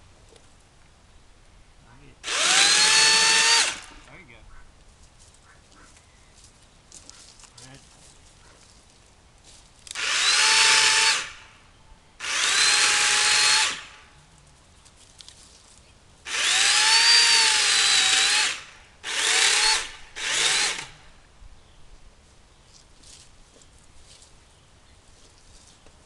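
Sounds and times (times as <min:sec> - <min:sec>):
electric chainsaw whining: 0:02.2 - 0:04.1, 0:09.9 - 0:11.5, 0:12.2 - 0:14.1, 0:16.3 - 0:21.1.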